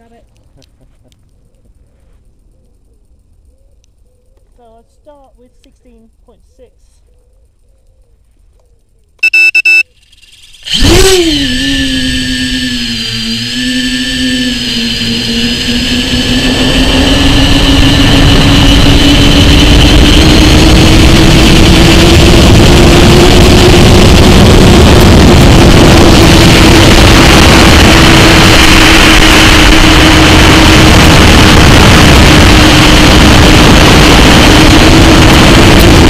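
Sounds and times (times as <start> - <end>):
drone motors whining: 9.2 - 36.0
rushing air: 12.7 - 36.0.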